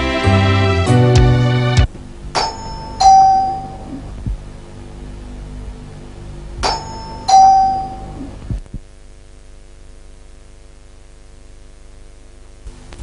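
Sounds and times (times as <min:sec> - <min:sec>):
faint steady hum: 0:00.0 - 0:13.0
doorbell ringing ding-dong: 0:02.4 - 0:04.0, 0:06.6 - 0:08.2.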